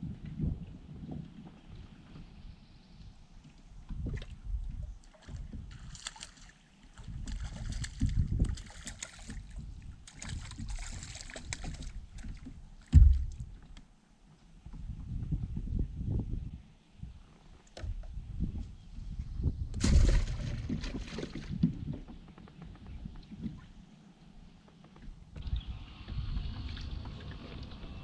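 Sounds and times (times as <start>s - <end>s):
wind rumble on microphone: 0.0s - 13.7s, 14.6s - 23.8s, 25.0s - 28.0s
loud thump: 12.9s - 13.4s.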